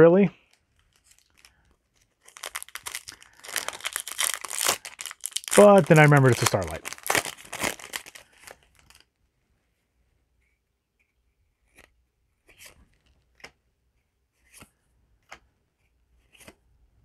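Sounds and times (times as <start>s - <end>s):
cards clicking and snapping: 16.2s - 16.6s.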